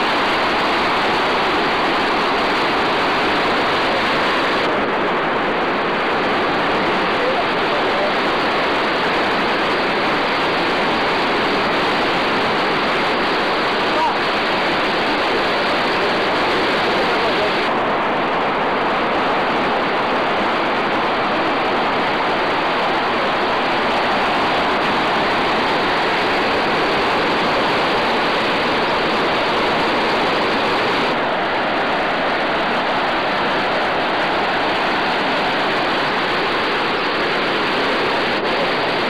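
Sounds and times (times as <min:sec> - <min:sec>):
falling water rushing: 0:00.0 - 0:39.0.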